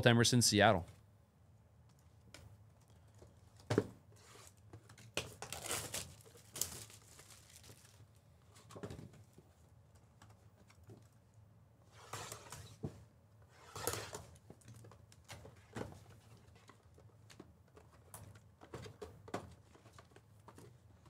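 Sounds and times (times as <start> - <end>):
wrapper crinkling and tearing: 5.4 - 8.1.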